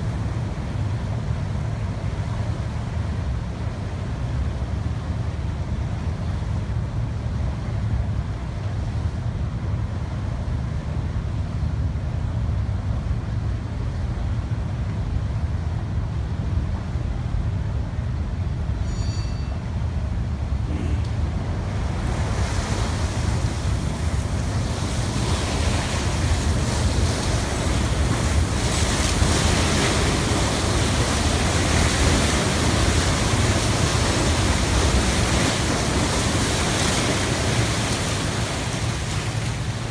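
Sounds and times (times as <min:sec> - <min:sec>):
ship low rumble: 0:00.0 - 0:39.9
water rushing along hull: 0:00.0 - 0:39.9.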